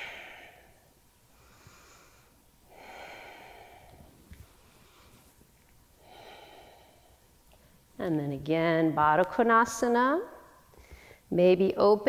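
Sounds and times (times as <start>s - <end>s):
woman breathing: 0.0s - 7.9s, 10.7s - 11.3s.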